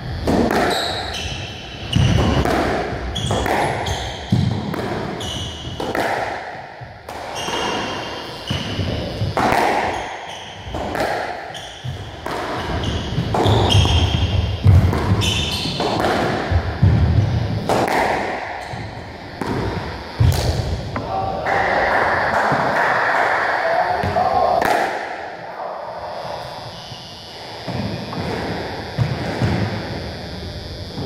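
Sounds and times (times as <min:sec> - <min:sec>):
squash ball smacking: 0:00.2 - 0:01.1, 0:01.8 - 0:21.1, 0:24.0 - 0:25.3.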